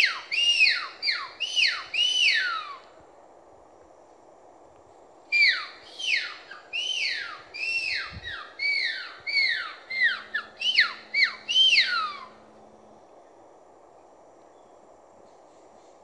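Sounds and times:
agouti whistles: 0:00.0 - 0:02.8, 0:05.3 - 0:12.3.

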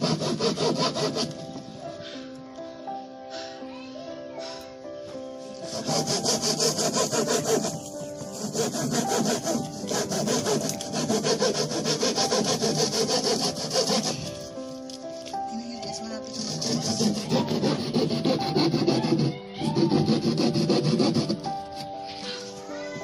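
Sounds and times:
handsaw cutting wood: 0:00.0 - 0:01.4, 0:05.5 - 0:14.5, 0:16.2 - 0:22.0.

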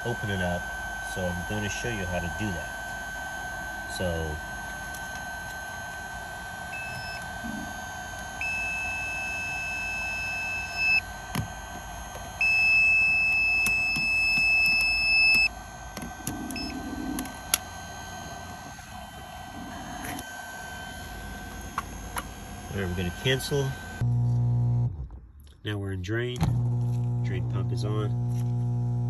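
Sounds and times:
electronic beeps: 0:06.8 - 0:07.7, 0:08.4 - 0:11.1, 0:12.4 - 0:15.5, 0:16.3 - 0:17.2.

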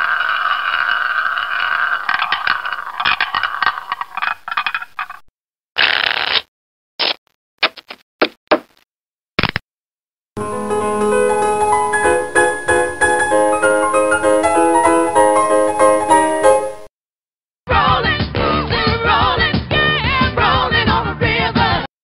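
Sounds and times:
hissing noise: 0:10.4 - 0:16.9.

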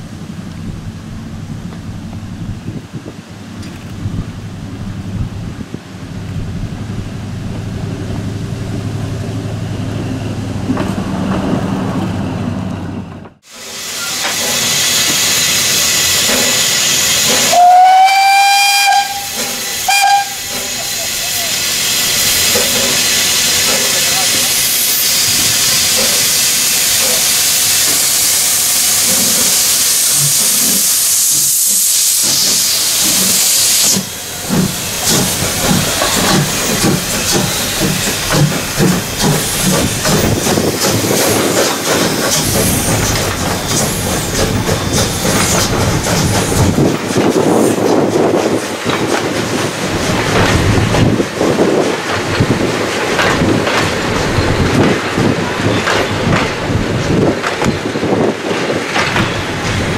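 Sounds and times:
locomotive rhythmic pulses and rattles: 0:03.4 - 0:59.9
steam locomotive hissing steam: 0:13.4 - 0:59.9.

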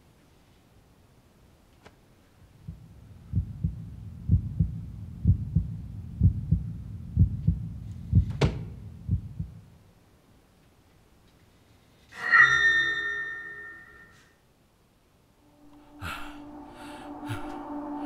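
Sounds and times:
heartbeat thumps: 0:02.6 - 0:09.7.

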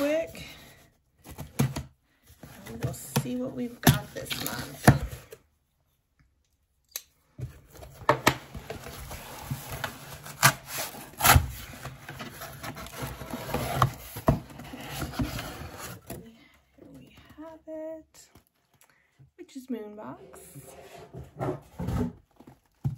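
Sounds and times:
cardboard rubbing and scraping: 0:08.6 - 0:16.1.

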